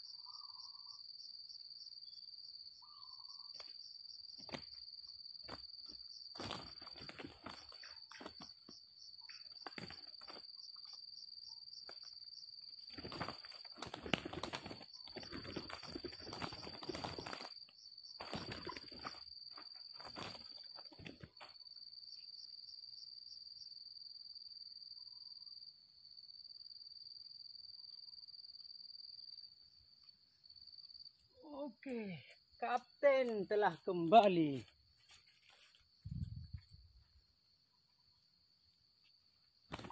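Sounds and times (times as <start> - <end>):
insect drone: 0.0 - 39.9
wing-beating and scuffling: 3.6 - 11.1, 11.8 - 21.6, 33.0 - 37.1, 39.0 - 39.9.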